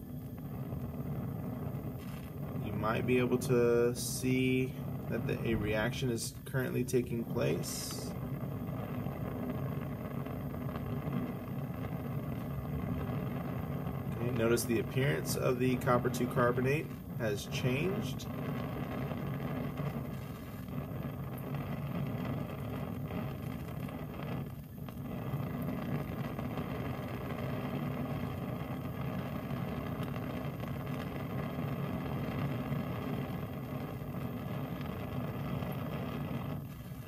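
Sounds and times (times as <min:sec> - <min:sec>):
gas burner flame rumbling: 0:00.0 - 0:37.0.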